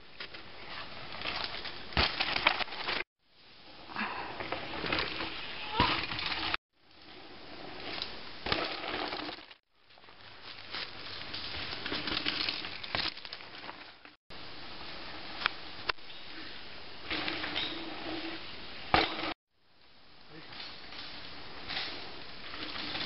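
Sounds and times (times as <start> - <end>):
bike tyres crunching on dirt: 0.0 - 3.1, 3.7 - 19.4, 20.4 - 23.0
bike clicks and rattling: 10.8 - 14.2.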